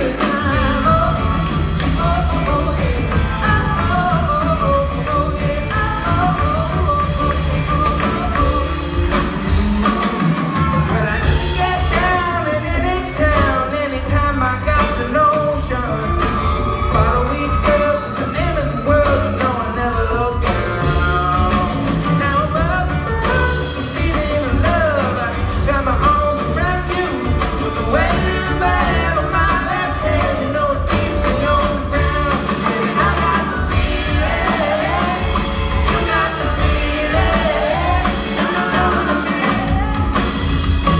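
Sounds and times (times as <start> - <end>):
woman singing lead vocal: 0.0 - 9.3, 17.0 - 40.7
live band playing: 0.0 - 40.9.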